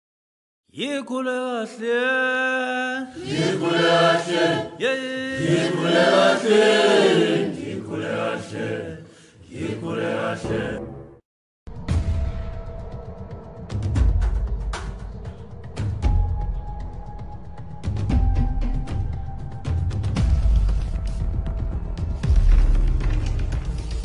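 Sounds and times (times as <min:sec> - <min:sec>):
voices chanting: 0:03.0 - 0:10.8.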